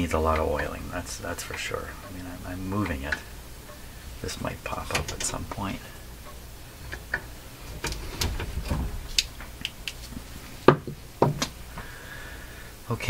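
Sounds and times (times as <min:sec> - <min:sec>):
mechanism clunks: 0:04.5 - 0:10.0
record changer clicks and knocks: 0:04.6 - 0:05.6, 0:06.3 - 0:11.6.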